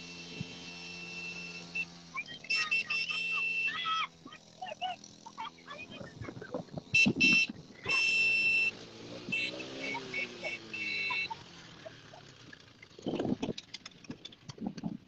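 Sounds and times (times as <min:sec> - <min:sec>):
horn beeping: 0:00.0 - 0:04.0, 0:06.9 - 0:11.6
quad bike engine revving: 0:00.0 - 0:15.0
scattered clicks: 0:12.8 - 0:15.0.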